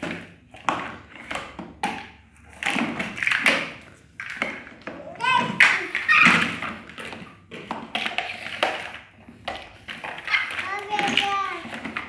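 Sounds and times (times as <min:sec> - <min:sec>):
plastic blocks clattering on tiles: 0:00.0 - 0:12.0.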